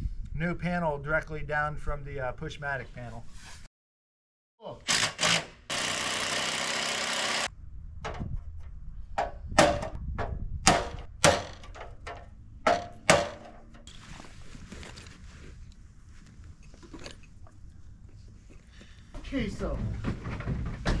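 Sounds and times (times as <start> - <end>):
sharp knocks and clunks: 8.0 - 13.9.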